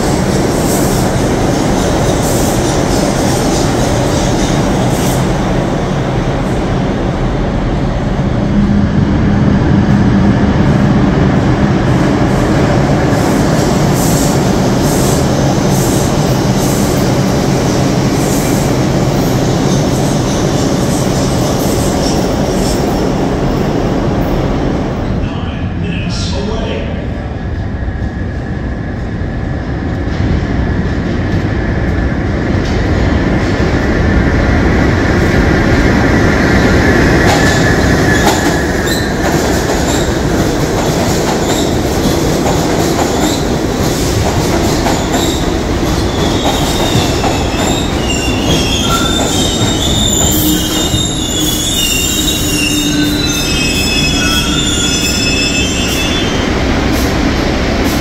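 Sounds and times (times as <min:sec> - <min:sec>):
subway train wheels rumbling on rail: 0:00.0 - 0:58.0
wheel and brake squeals: 0:46.2 - 0:56.5.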